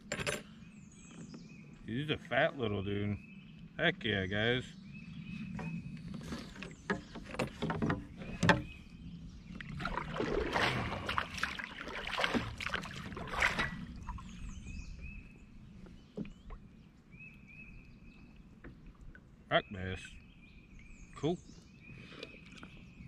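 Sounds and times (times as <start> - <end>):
paddle knocking against kayak: 6.6 - 8.8
paddle splashing in water: 9.5 - 14.6.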